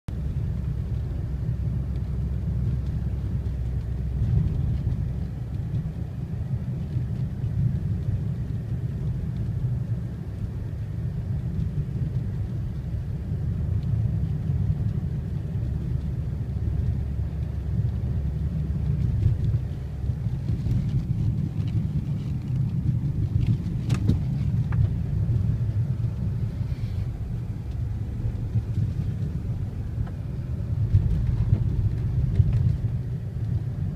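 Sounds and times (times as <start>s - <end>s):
car driving low rumble: 0.1s - 33.9s.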